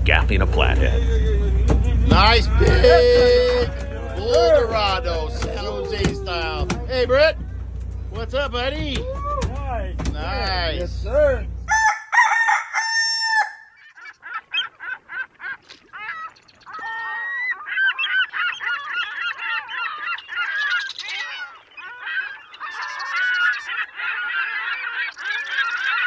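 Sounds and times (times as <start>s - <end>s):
flock of birds calling: 11.7s - 26.0s.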